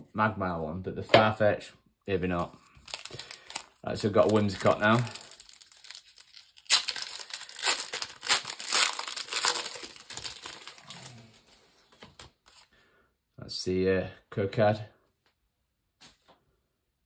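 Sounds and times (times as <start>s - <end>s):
foil wrapper crinkling and tearing: 2.7s - 11.5s.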